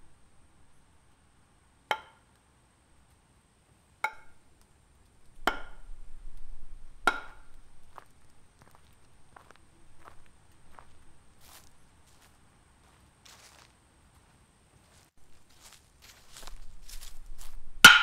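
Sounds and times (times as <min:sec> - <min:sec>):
rocks striking with ringing clacks: 0:05.4 - 0:05.9, 0:07.0 - 0:08.0.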